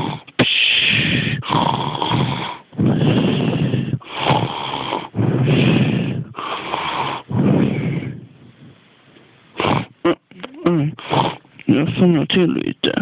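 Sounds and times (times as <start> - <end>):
person snoring: 0.0 - 8.3, 10.7 - 12.1.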